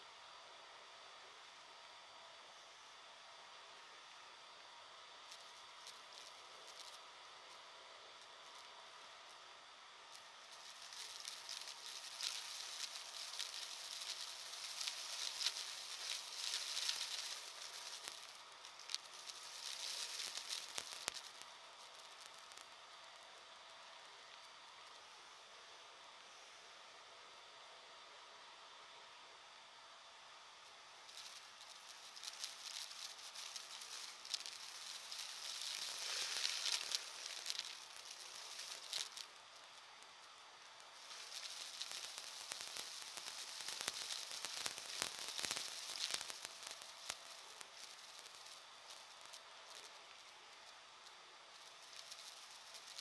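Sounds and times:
muffled vacuum cleaner motor: 0.0s - 53.0s
debris crackling in vacuum cleaner: 10.5s - 22.6s, 31.1s - 39.4s, 40.9s - 50.3s.

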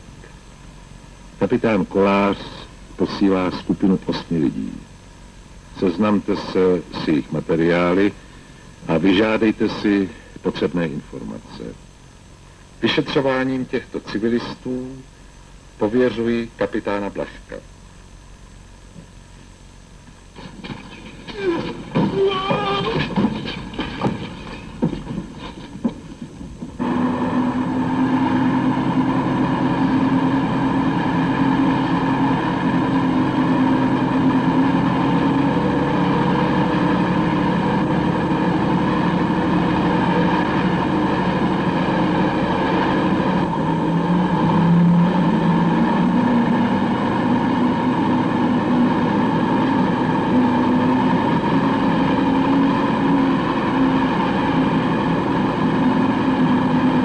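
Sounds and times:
truck engine running: 20.0s - 57.0s.

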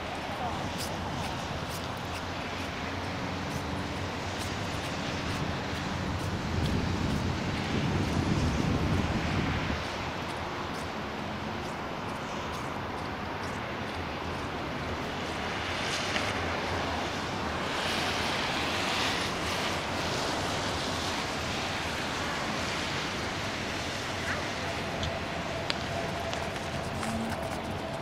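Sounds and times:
wind noise on microphone: 0.0s - 28.0s.

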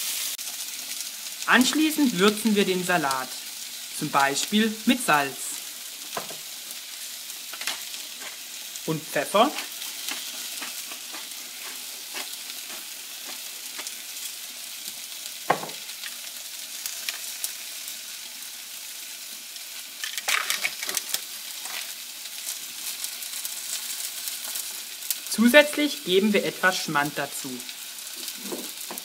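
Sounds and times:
food sizzling in a frying pan: 0.0s - 29.0s
utensil stirring and scraping pan: 7.5s - 8.6s, 9.4s - 14.0s.

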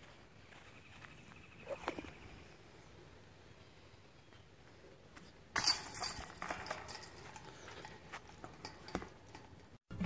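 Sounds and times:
metal chains jangling: 5.6s - 9.8s
sharp metal clatter: 5.6s - 9.8s.

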